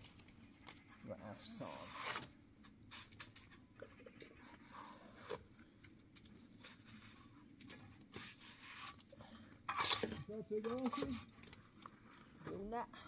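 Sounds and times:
trowel scraping mortar: 0:01.6 - 0:03.6, 0:06.6 - 0:11.6.

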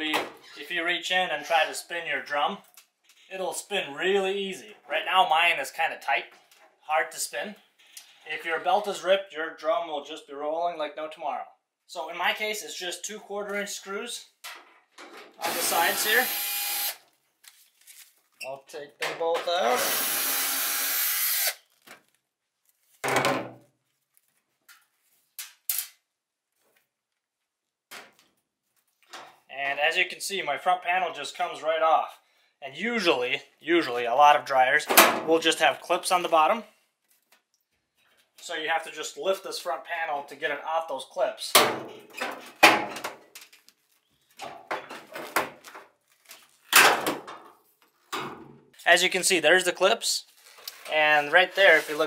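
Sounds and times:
cordless drill running: 0:15.4 - 0:17.0, 0:19.7 - 0:21.6.

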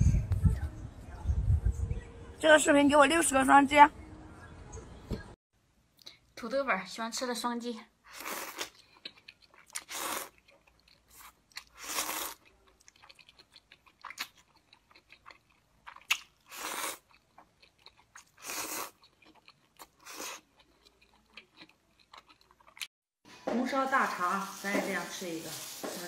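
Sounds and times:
person slurping noodles: 0:08.0 - 0:08.8, 0:09.7 - 0:10.4, 0:11.1 - 0:12.4, 0:16.4 - 0:17.1, 0:18.2 - 0:19.0, 0:19.9 - 0:20.6
wet chewing: 0:08.1 - 0:22.9.

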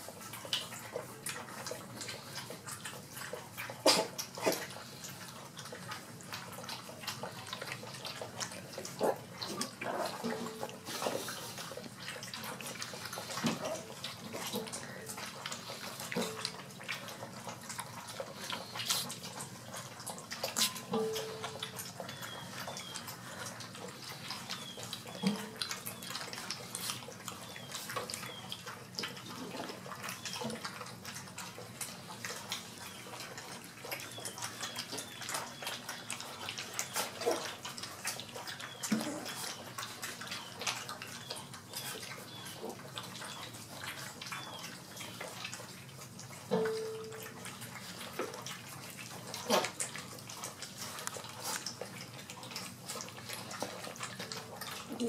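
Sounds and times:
puppies lapping and slurping: 0:00.0 - 0:55.0.

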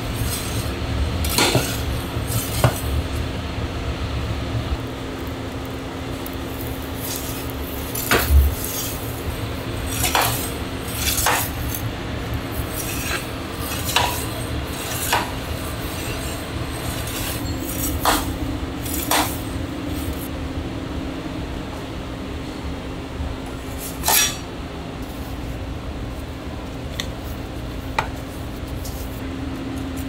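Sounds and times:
steady hum: 0:00.0 - 0:30.0
metal utensils clattering on dishes: 0:01.3 - 0:02.9, 0:12.7 - 0:19.5, 0:23.9 - 0:24.4.

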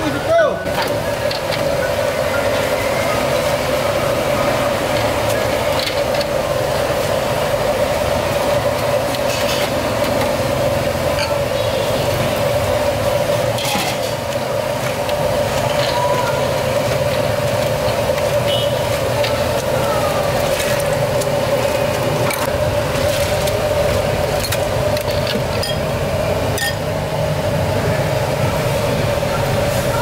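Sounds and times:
steady droning hum: 0:00.0 - 0:30.0
ladle and bowls clinking: 0:26.5 - 0:26.9.

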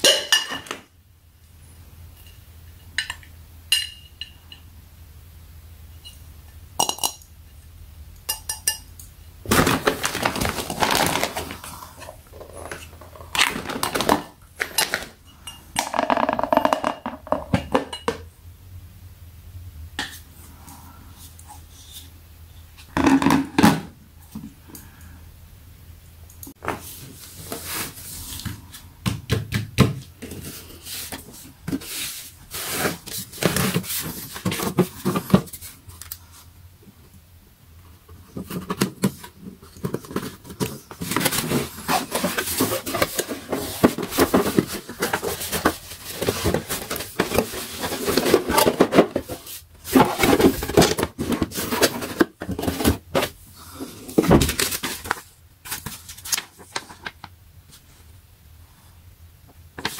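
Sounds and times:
paper and wrapping rustling: 0:09.4 - 0:15.2, 0:30.2 - 0:36.5, 0:38.2 - 0:58.1
cardboard flaps scraping: 0:40.3 - 0:53.4.

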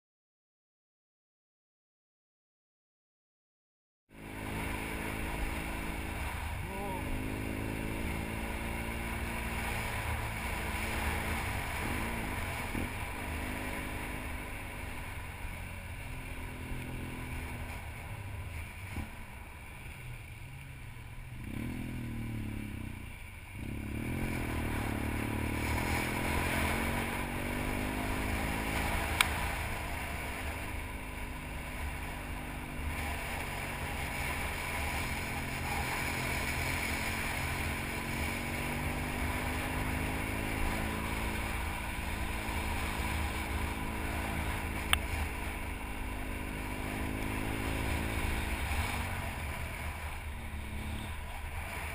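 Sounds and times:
motorcycle engine revving: 0:04.1 - 0:51.9
sharp tick: 0:29.1 - 0:29.4, 0:44.8 - 0:45.1.

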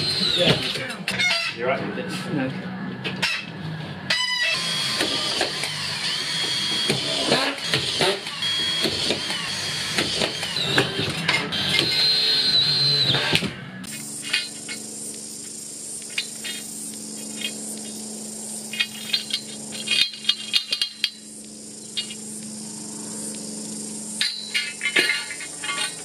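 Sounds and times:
screw gun whining: 0:00.0 - 0:01.5, 0:04.1 - 0:26.0
high insect drone: 0:13.8 - 0:26.0.

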